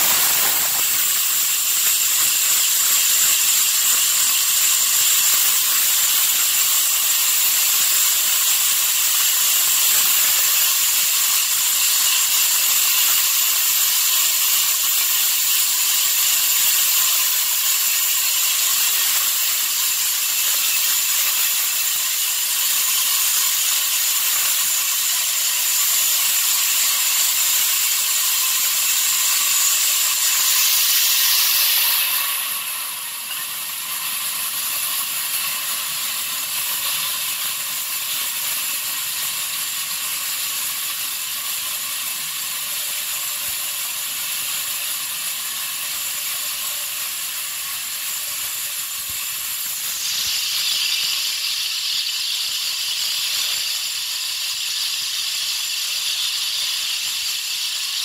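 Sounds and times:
saw blade cutting through log: 0.0 - 4.1.

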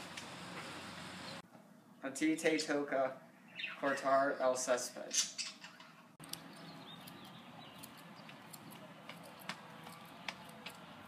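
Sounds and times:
faint outdoor hiss: 0.0 - 9.4
scissors snipping grass: 6.2 - 11.0.

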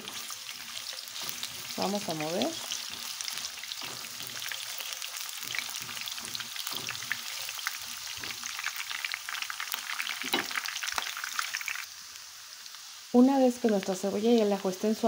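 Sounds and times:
spatula stirring in pan: 0.0 - 10.8
onion and garlic sizzling in oil: 0.0 - 15.0.

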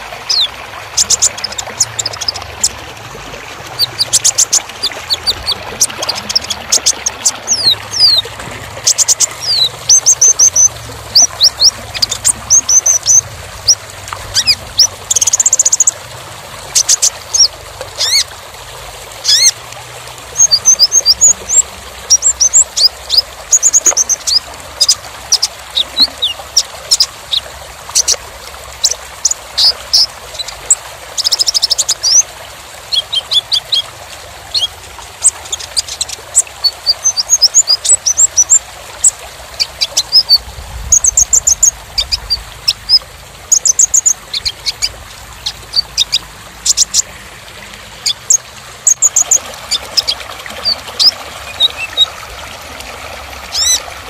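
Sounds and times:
sunbird singing high chirps: 3.8 - 13.8.

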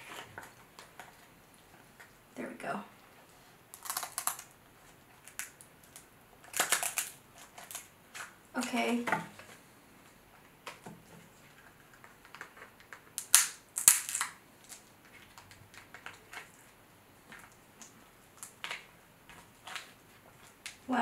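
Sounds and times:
crab shell cracking: 3.7 - 4.6, 5.2 - 8.3, 12.2 - 16.5
small shell clicks and crackles: 3.7 - 4.6, 5.2 - 8.3, 11.6 - 16.6.

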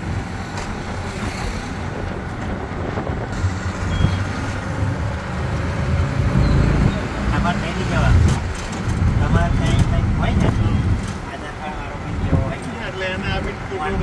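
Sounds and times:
auto rickshaw engine running: 0.0 - 14.0
road and traffic noise: 0.0 - 14.0
brief high beep: 3.9 - 4.3.

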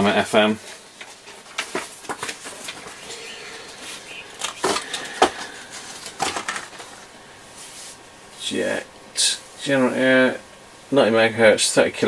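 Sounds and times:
paper rustling: 1.0 - 8.0.

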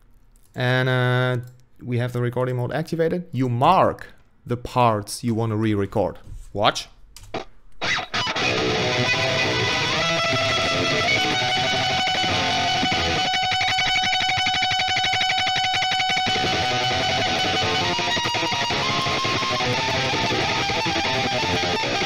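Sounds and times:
electric guitar lead line: 7.3 - 22.0.

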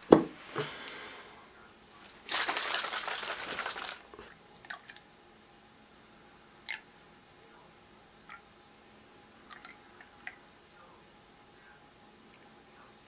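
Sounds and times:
rustling crinkling: 2.0 - 4.3.

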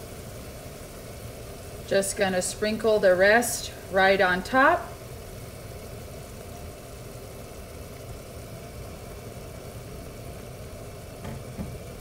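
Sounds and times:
faint hiss: 0.0 - 12.0.

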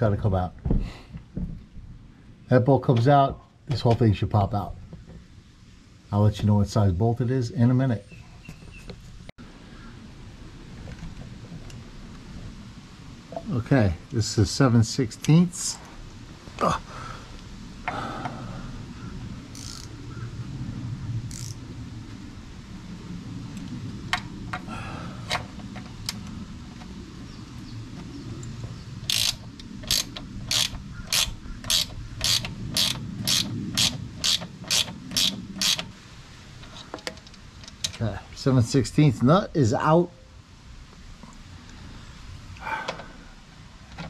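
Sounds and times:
socket ratchet clicking: 19.5 - 19.9, 21.3 - 21.6, 29.1 - 35.9.

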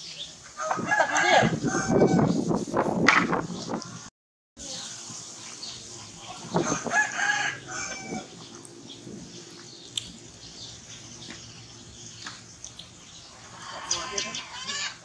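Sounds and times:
rooster crowing: 0.6 - 2.4, 6.3 - 8.4, 13.4 - 15.0.

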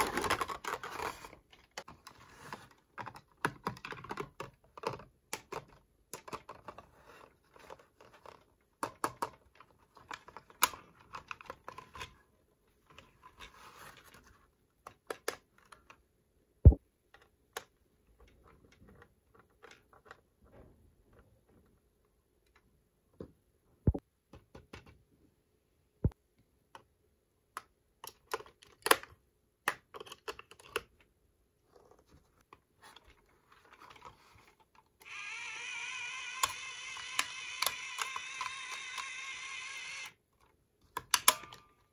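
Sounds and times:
plastic toy pieces clicking: 35.0 - 39.8.

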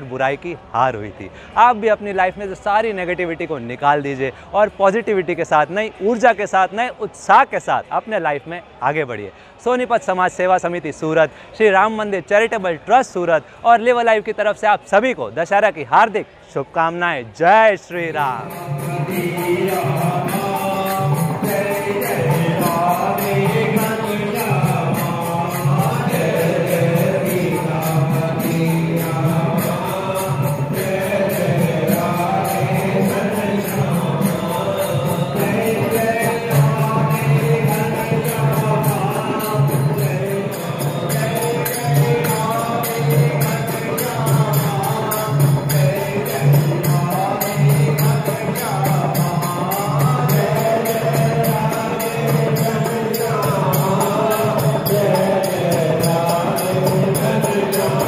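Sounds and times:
jingling percussion: 17.5 - 58.0
group devotional singing: 18.4 - 58.0.

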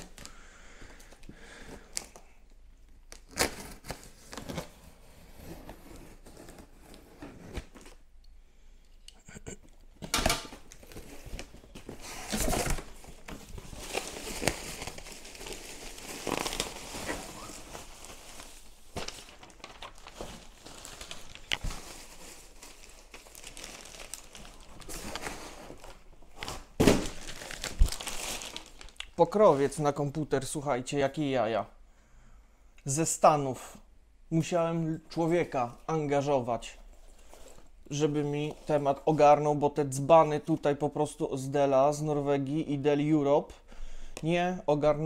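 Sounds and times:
plastic packing wrap rustling: 10.2 - 29.8.

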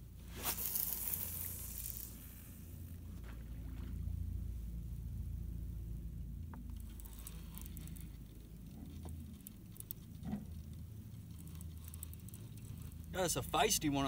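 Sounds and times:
fishing reel ticking: 0.5 - 2.2, 6.7 - 14.0.

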